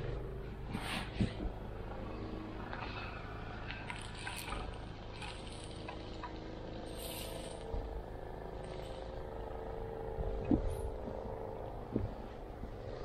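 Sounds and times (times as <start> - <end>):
snowblower engine running: 0.0 - 13.0.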